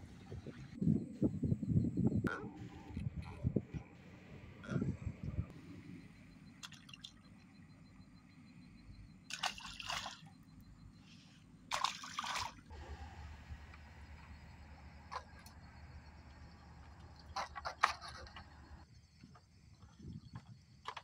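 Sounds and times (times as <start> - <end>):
low steady hum: 0.0 - 18.8
water splashing: 9.3 - 10.3, 11.7 - 12.8.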